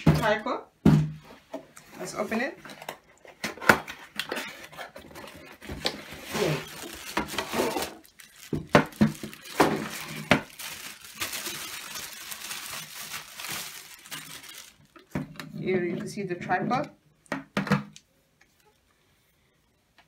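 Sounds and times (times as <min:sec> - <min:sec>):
packaging rustling and crinkling: 0:02.0 - 0:15.4.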